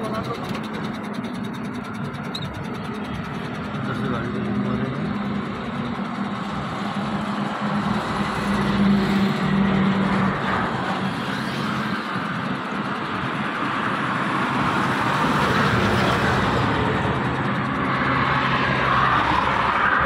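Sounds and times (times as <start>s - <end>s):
vehicle noise low hum: 0.0s - 20.0s.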